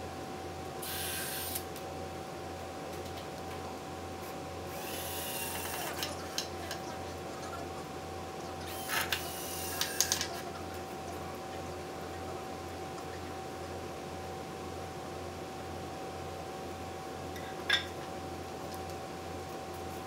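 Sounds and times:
steady low hum: 0.0 - 20.0
drill driving screws into wood: 4.7 - 5.9, 8.7 - 10.2.

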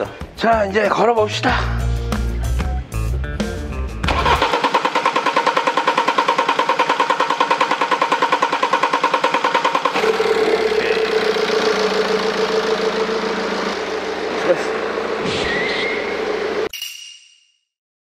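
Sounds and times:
diesel engine cranking: 4.0 - 16.7
diesel engine idling: 4.1 - 16.7.

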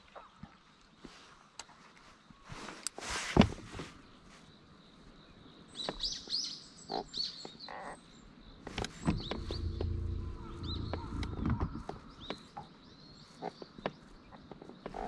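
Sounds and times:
small birds chirping: 3.8 - 15.0
faint whine: 8.9 - 12.6
low steady hum: 9.0 - 12.4.

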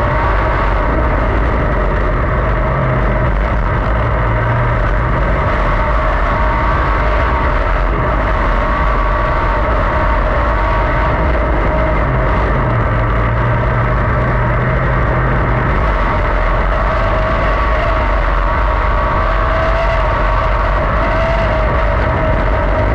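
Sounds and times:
race car engine at speed: 0.0 - 22.9.

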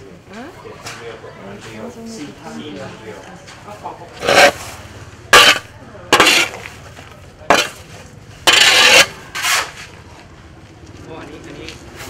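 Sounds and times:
shovel scraping into fish: 4.2 - 4.7, 5.4 - 6.7, 8.5 - 9.8.

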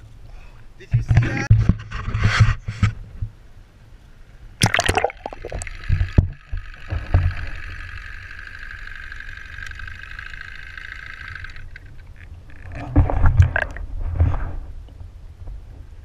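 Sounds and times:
water splashing and gurgling: 4.6 - 14.3.

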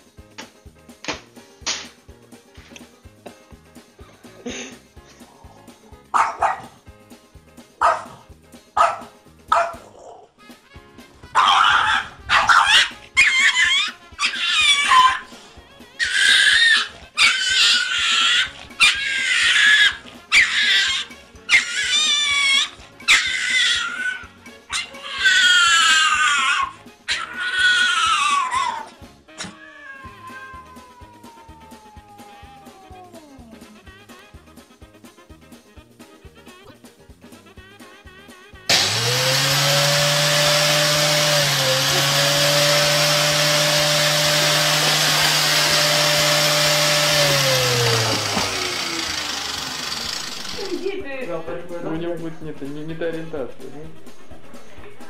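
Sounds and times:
background music: 0.0 - 55.0
cat meowing: 25.0 - 33.7
electric motor running: 38.7 - 50.9.

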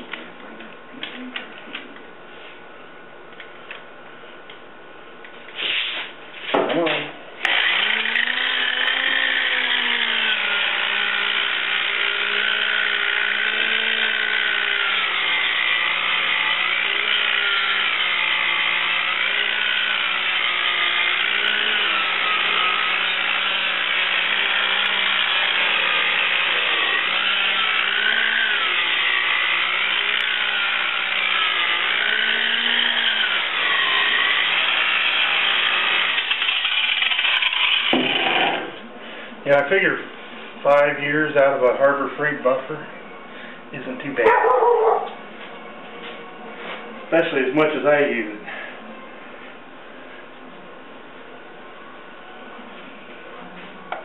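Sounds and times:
electric buffer motor whine: 7.4 - 38.9.

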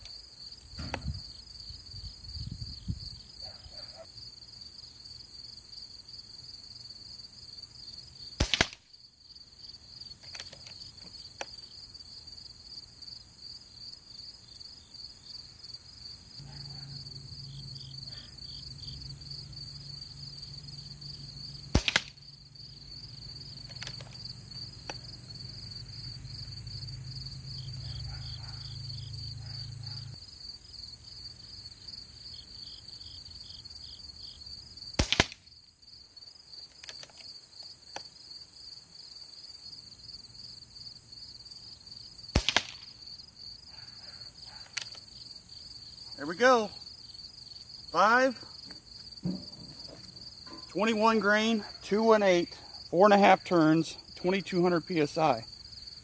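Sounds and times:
insects chirping: 0.0 - 56.0
air rifle shot crack: 8.4 - 8.8, 21.7 - 22.2, 35.0 - 35.4, 42.3 - 42.9.

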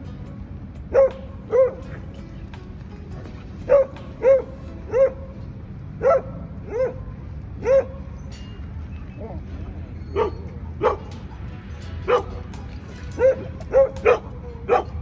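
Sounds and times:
dog barking: 0.9 - 1.9, 3.7 - 5.3, 6.0 - 8.0, 10.1 - 11.2, 12.1 - 12.4, 13.1 - 15.0.

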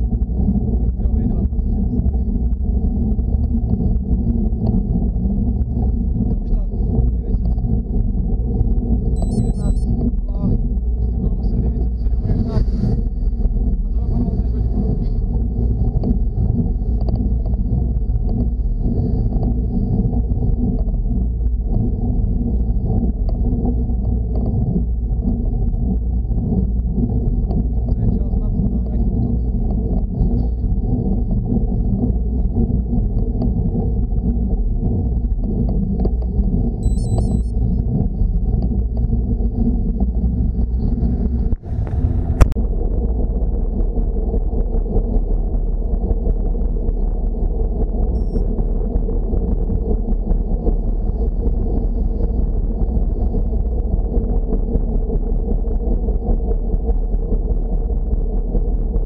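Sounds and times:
wind buffeting microphone: 0.0 - 59.0
road noise: 40.1 - 43.4.

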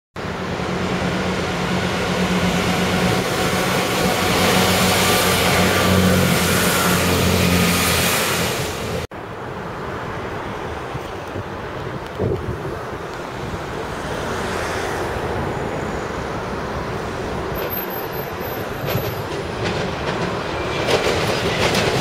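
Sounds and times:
diesel train engines droning: 0.2 - 11.8
train wheel and rail noise: 0.2 - 22.0.

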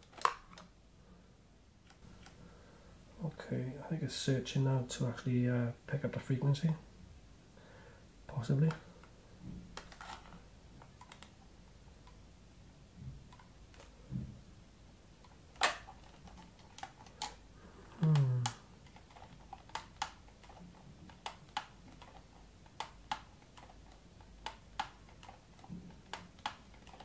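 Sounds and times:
man humming low: 17.9 - 18.6.

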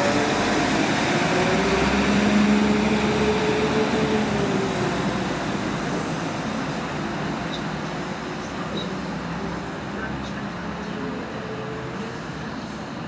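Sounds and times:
train engine hum: 0.0 - 13.0.

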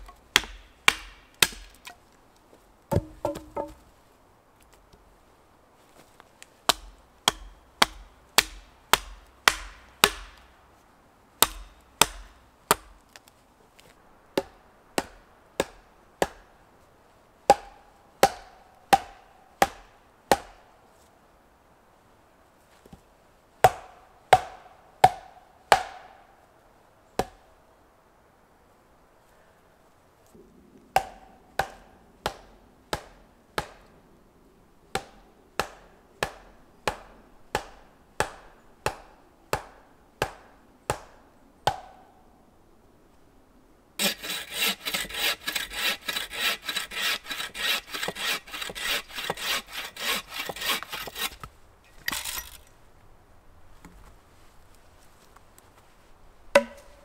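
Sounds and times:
axe striking wood: 0.0 - 2.0, 2.9 - 3.8, 6.7 - 10.4, 11.4 - 12.9, 17.5 - 20.6, 23.7 - 26.1, 31.0 - 33.8, 56.5 - 57.0
bow saw cutting log: 44.0 - 51.5.

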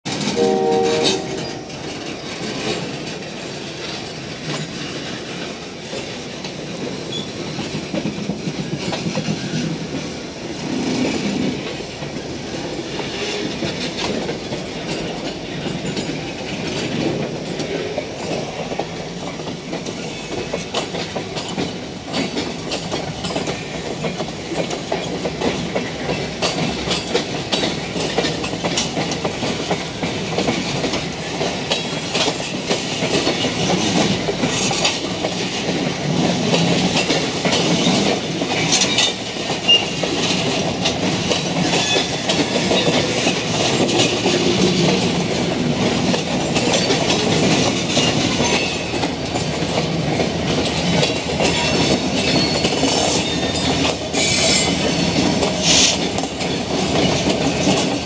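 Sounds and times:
train wheels clacking over rail joints: 0.1 - 58.0
wheel squeal: 52.2 - 53.6.

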